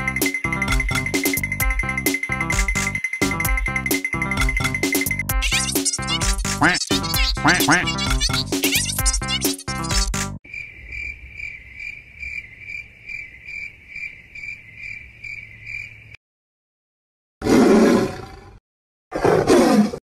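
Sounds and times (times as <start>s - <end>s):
cricket chirping: 10.5s - 16.2s.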